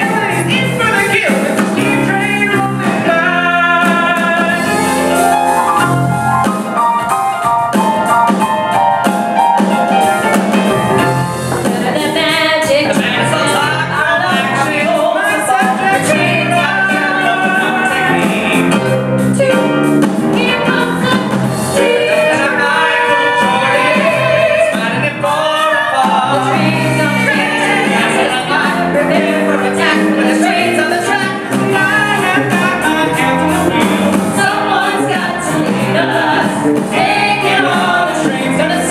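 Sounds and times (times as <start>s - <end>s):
man singing into microphone: 0.0s - 4.8s, 12.7s - 18.9s, 21.8s - 33.6s
live band playing: 0.0s - 38.9s.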